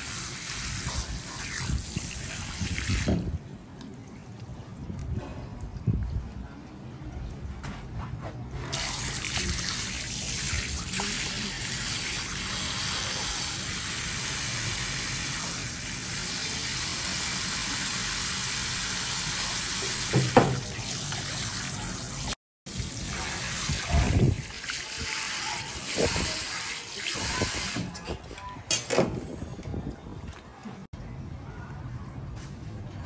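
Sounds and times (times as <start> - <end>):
tap water running into sink: 16.3 - 27.8
knock: 20.1 - 20.6.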